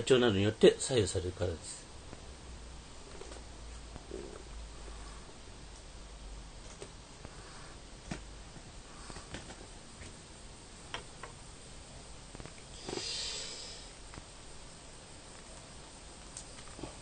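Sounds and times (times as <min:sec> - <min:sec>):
gas lighter hiss: 0:12.7 - 0:14.0.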